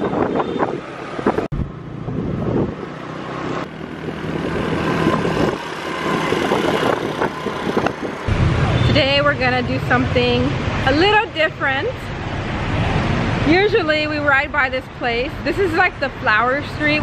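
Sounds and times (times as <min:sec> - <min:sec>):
wind buffeting microphone: 0:00.0 - 0:03.0, 0:03.6 - 0:10.9
motorbike and car engines: 0:00.0 - 0:17.0.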